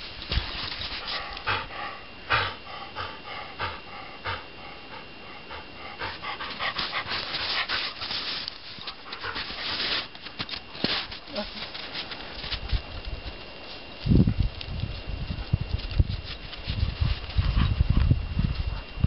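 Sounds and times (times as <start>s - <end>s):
dog rolling in crunchy snow: 0.0s - 1.3s, 6.1s - 17.7s
dog panting: 0.9s - 8.2s, 16.7s - 19.0s.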